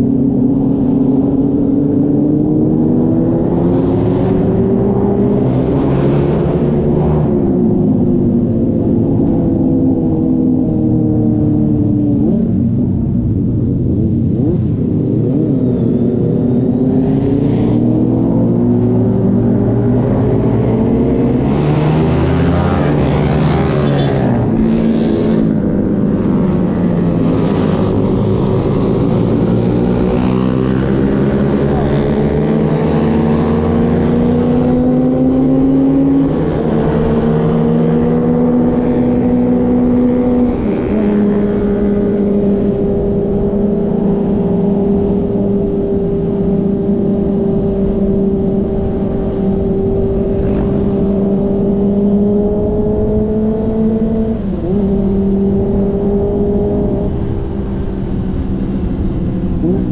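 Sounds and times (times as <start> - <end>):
wind rushing over microphone: 0.0 - 59.9
motorcycle engine revving: 11.3 - 59.9.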